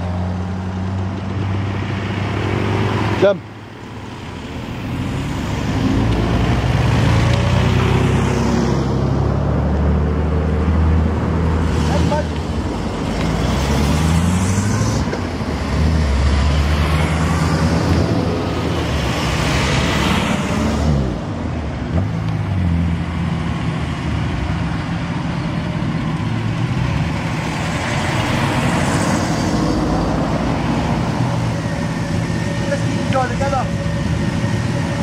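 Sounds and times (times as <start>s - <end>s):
cars driving past: 0.0s - 35.0s
vee eight engine close by: 0.0s - 35.0s.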